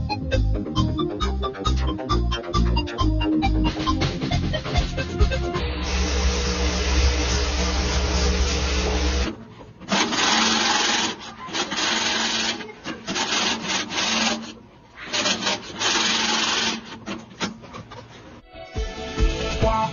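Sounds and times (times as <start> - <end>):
music: 0.0 - 9.3, 18.4 - 19.9.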